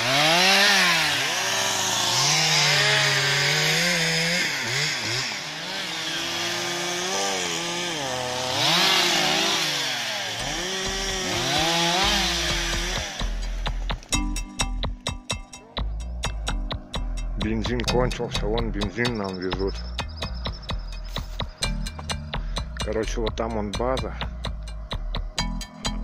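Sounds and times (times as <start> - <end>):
chainsaw revving and cutting: 0.0 - 14.1.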